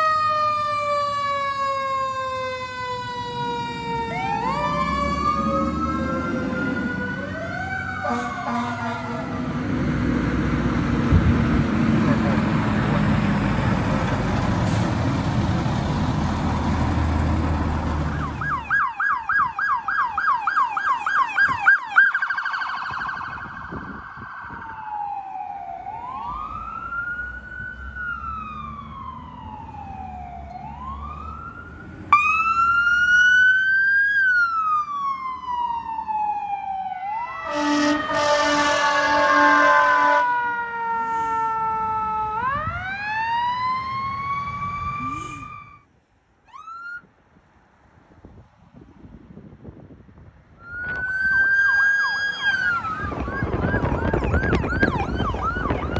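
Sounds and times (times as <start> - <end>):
electronic siren yelping and wailing: 0.0 - 9.4, 18.1 - 45.8, 46.5 - 47.0, 50.6 - 55.9
second siren wailing: 0.0 - 9.7, 18.0 - 45.9, 46.5 - 47.1, 50.6 - 55.9
engine and road noise: 0.0 - 55.9
air horn blasts: 8.0 - 9.4, 37.4 - 40.4.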